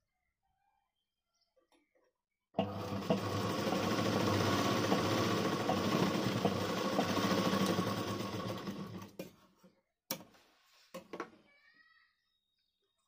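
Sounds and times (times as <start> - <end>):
sewing machine stitching: 2.6 - 9.3.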